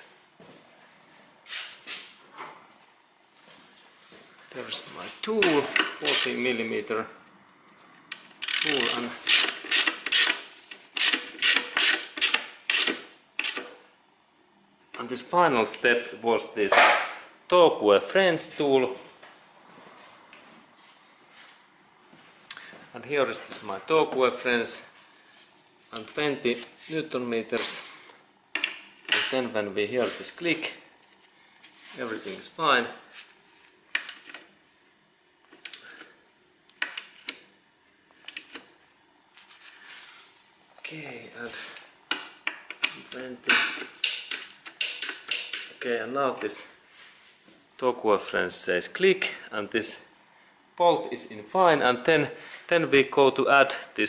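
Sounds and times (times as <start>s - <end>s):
socket wrench ratcheting: 8.1s - 10.4s, 11.0s - 13.7s, 43.9s - 45.7s.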